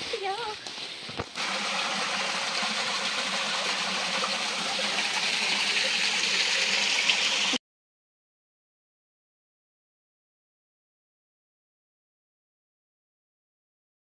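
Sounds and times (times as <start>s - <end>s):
stream splashing over rocks: 1.3s - 7.6s.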